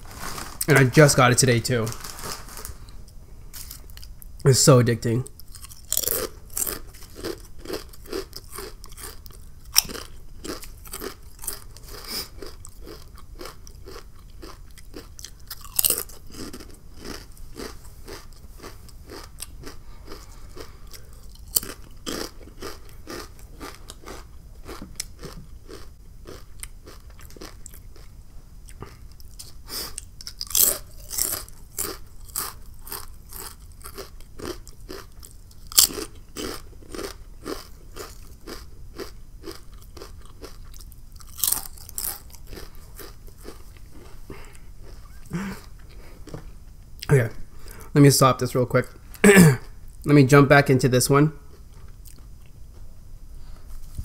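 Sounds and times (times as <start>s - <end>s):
potato chips crunching: 0.0s - 3.0s, 5.3s - 28.1s, 28.8s - 45.0s.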